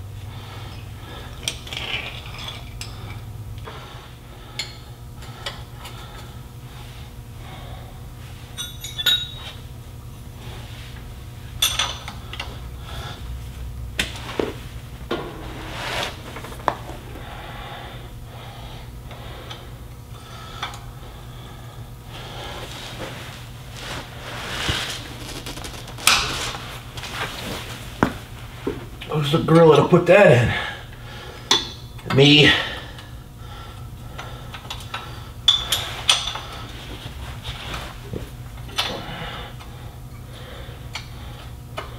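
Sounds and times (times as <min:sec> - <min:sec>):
low hum: 0:00.0 - 0:29.1
wrench clinking on metal: 0:08.6 - 0:09.4.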